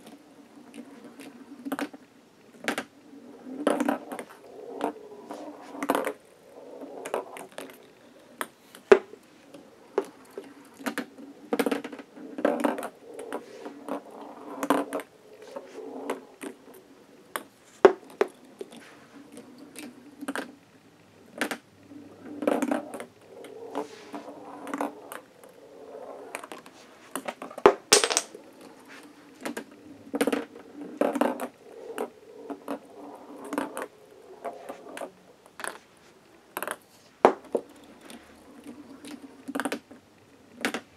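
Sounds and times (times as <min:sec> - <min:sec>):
balls rolling on plastic track: 0:00.0 - 0:40.9.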